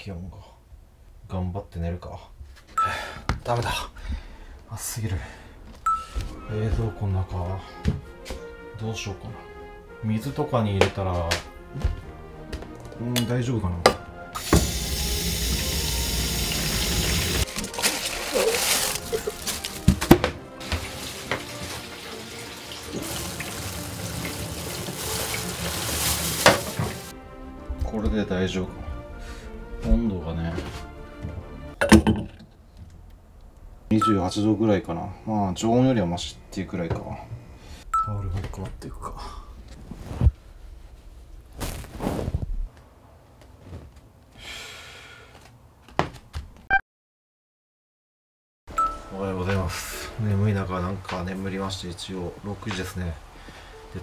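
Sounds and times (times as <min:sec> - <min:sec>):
tap water running into sink: 0:14.4 - 0:20.0, 0:20.6 - 0:27.1
plastic bags rustling and splashing: 0:17.1 - 0:27.1
clothes rustling: 0:17.4 - 0:20.0, 0:24.5 - 0:27.1, 0:39.6 - 0:44.3.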